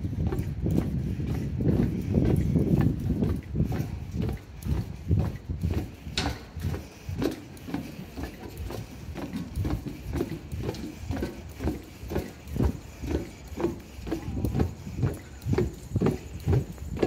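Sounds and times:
footsteps on a trail: 0:00.0 - 0:17.0.

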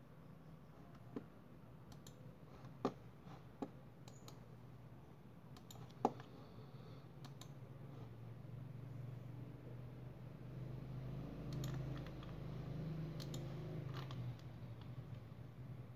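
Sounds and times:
steady low hum: 0:00.0 - 0:15.9
computer mouse clicks: 0:00.9 - 0:04.5, 0:05.5 - 0:06.4, 0:07.2 - 0:07.6, 0:11.4 - 0:12.4, 0:13.1 - 0:15.2.

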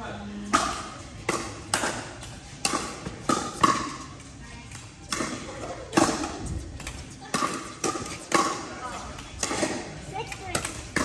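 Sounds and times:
ball bouncing on court: 0:04.7 - 0:11.0.

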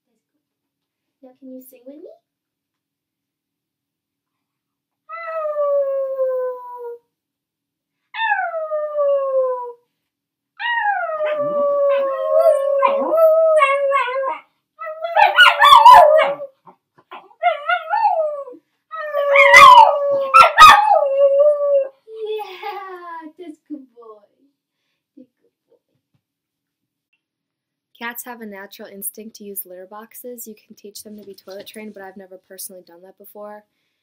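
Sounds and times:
dog howling: 0:10.6 - 0:16.5, 0:17.1 - 0:21.9
woman howling: 0:10.7 - 0:14.3.

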